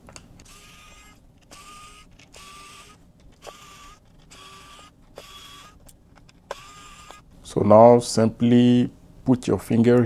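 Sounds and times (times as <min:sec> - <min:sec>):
electric screwdriver whirring: 0:00.4 - 0:07.3.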